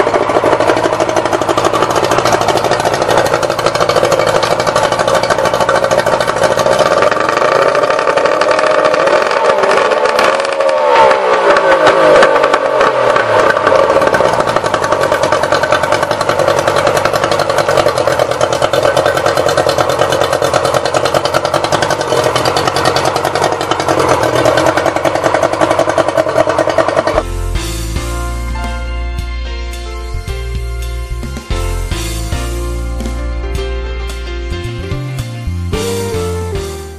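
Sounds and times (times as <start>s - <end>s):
outboard motor running and revving: 0.0s - 27.3s.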